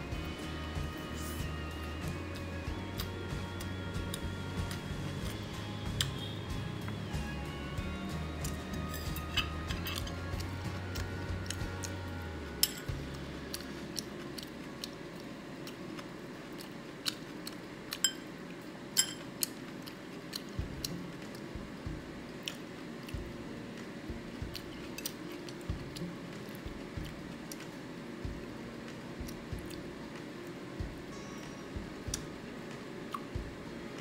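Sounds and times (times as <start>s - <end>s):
chewing: 8.4s - 18.3s, 19.0s - 21.5s, 22.4s - 23.3s, 24.2s - 27.8s.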